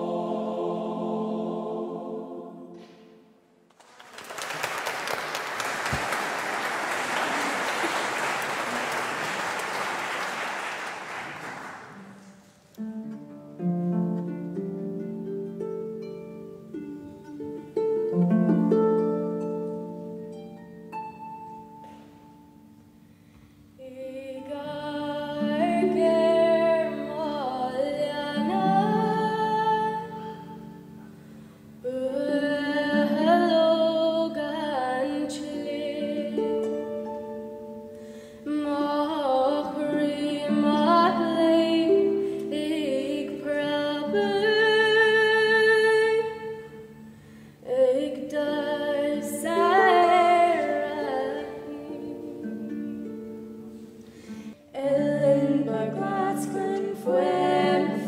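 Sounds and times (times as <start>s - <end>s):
audience applause: 3.7s - 12.4s
instrumental music with held notes: 12.8s - 23.7s, 24.3s - 44.5s
solo singing voice: 23.8s - 30.7s, 54.7s - 58.0s.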